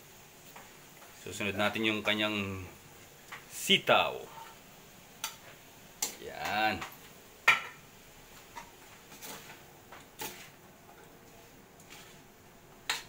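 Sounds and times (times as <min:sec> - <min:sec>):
metal spatula scraping a wok: 0:08.5 - 0:09.6, 0:10.2 - 0:10.6, 0:11.4 - 0:13.0.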